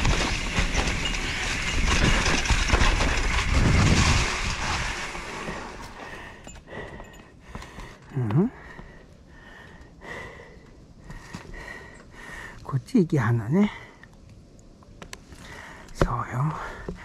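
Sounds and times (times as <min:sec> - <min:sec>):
bike tyres rolling over dry leaves: 0:00.0 - 0:06.4.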